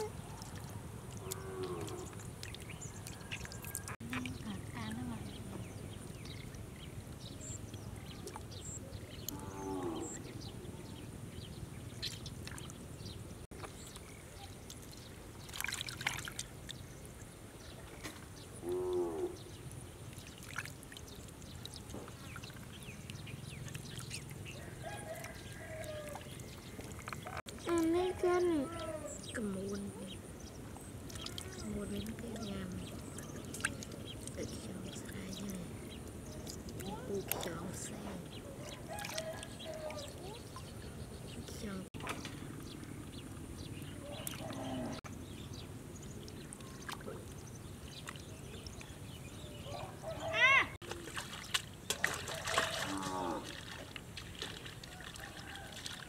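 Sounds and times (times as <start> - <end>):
water dripping and trickling: 0.0 - 10.2, 11.9 - 49.5, 50.8 - 56.0
low steady outdoor rumble: 16.2 - 51.9.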